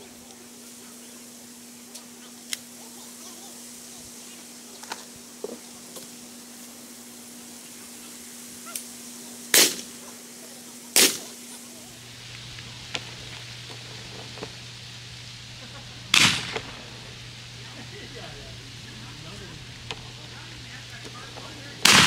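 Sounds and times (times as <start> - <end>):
shotgun shots: 9.5 - 10.0, 11.0 - 11.3, 16.1 - 17.0, 21.8 - 22.0.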